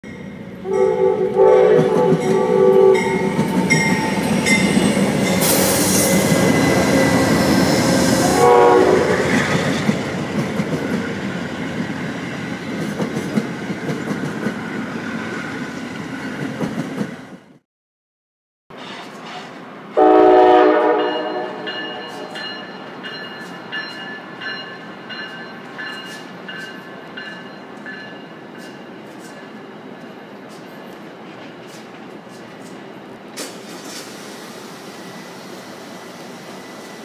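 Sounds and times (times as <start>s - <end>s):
train rushing past: 0.1s - 17.6s, 18.8s - 37.0s
diesel locomotive horn blasts: 0.6s - 4.1s, 4.7s - 9.4s, 20.0s - 22.4s
train wheels clickety-clack: 1.6s - 8.4s, 9.2s - 11.2s, 12.6s - 14.6s, 16.4s - 17.4s, 21.0s - 34.6s.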